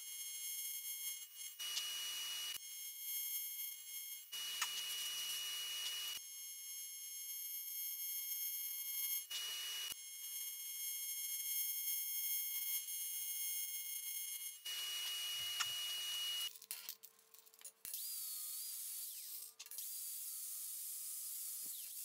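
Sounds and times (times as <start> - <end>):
welding arc buzzing: 4.2 - 6.2, 14.7 - 16.5.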